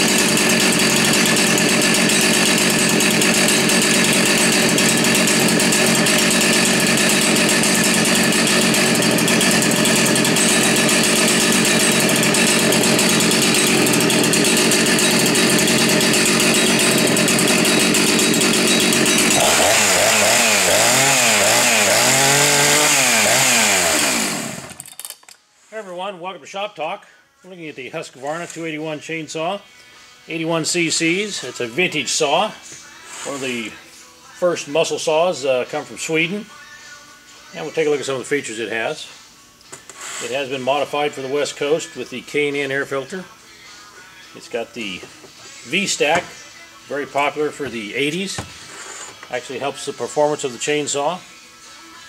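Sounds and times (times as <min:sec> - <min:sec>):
chainsaw engine revving: 0:00.0 - 0:24.8.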